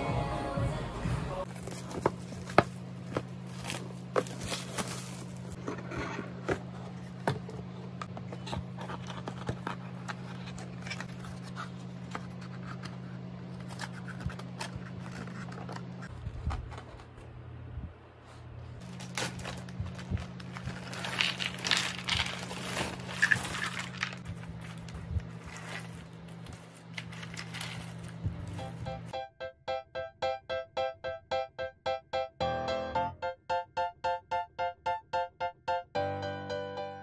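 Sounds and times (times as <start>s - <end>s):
steady low hum: 0.6s - 29.1s
plastic crinkling: 1.5s - 5.6s, 18.8s - 28.8s
puzzle pieces rattling: 20.2s - 24.3s.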